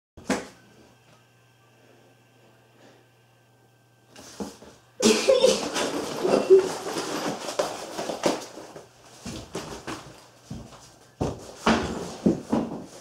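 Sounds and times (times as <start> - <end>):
mask rustling and scratching: 5.4 - 13.0.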